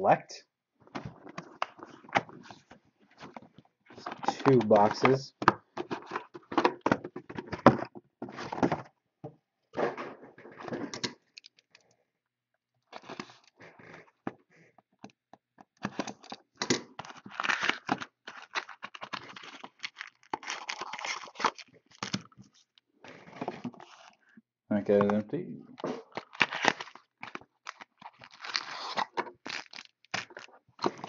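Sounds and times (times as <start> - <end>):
plastic wrap crinkling and tearing: 17.0 - 22.4, 26.0 - 31.0.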